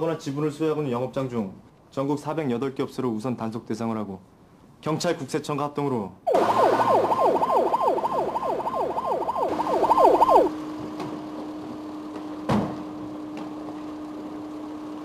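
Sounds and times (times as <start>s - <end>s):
police siren yelping: 6.3s - 10.6s
thump: 12.5s - 12.8s.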